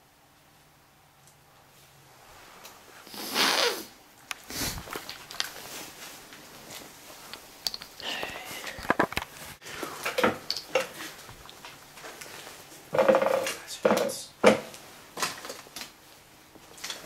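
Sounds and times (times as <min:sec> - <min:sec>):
footsteps crunching over debris: 0:04.5 - 0:07.3.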